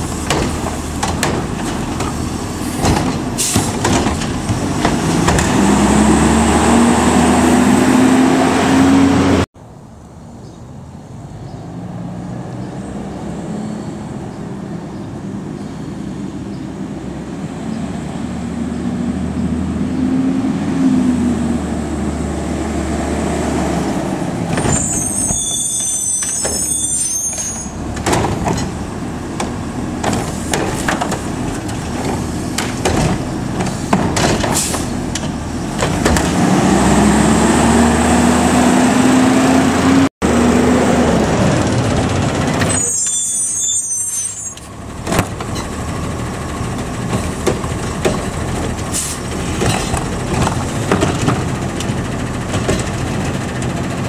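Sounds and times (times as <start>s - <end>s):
metal clanks and bangs: 0.0s - 5.7s, 27.7s - 36.4s, 46.9s - 54.0s
diesel truck engine revving: 0.0s - 9.5s, 16.3s - 25.9s, 27.5s - 42.8s, 44.6s - 54.0s
high squeal: 24.6s - 27.8s, 42.7s - 44.7s.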